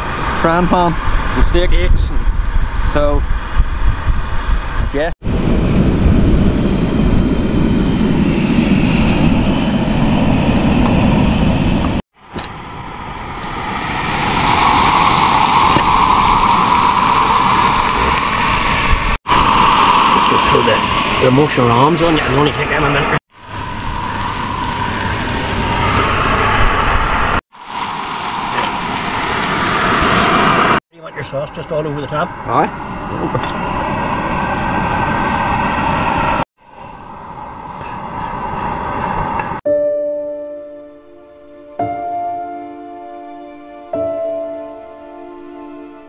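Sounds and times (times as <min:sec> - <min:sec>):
wind buffeting microphone: 0:00.0 - 0:30.8.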